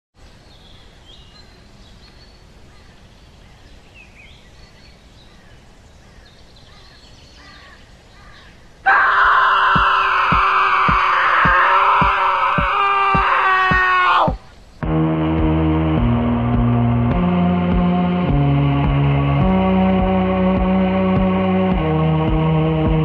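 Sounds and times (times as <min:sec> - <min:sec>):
music with low thumps: 0:10.3 - 0:23.0.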